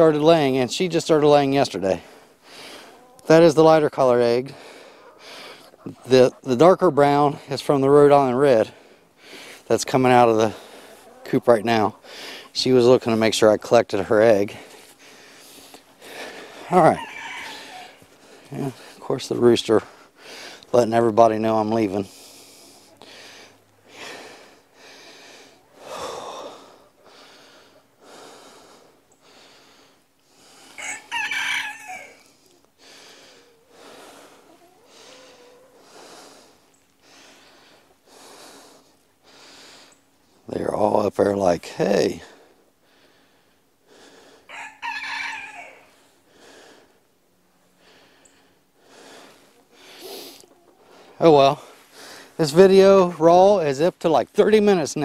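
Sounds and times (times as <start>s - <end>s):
person breathing hard: 2.0s - 3.1s, 4.5s - 5.8s, 8.7s - 9.7s, 12.0s - 12.6s, 14.5s - 16.7s, 19.8s - 20.7s, 22.0s - 30.8s, 32.2s - 40.1s, 42.2s - 44.5s, 45.9s - 47.1s, 47.7s - 52.4s
rooster crowing: 16.8s - 18.1s, 30.8s - 32.3s, 44.5s - 46.0s.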